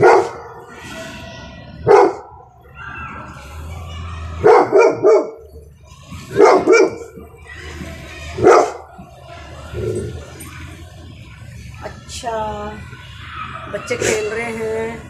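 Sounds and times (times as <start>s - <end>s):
dog barking excitedly: 0.0s - 0.6s, 1.8s - 2.4s, 4.4s - 5.5s, 6.3s - 7.2s, 8.4s - 8.9s.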